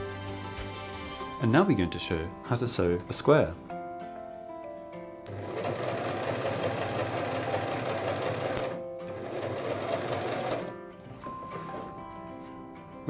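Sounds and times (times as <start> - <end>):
sewing machine needle clattering: 5.3 - 10.7.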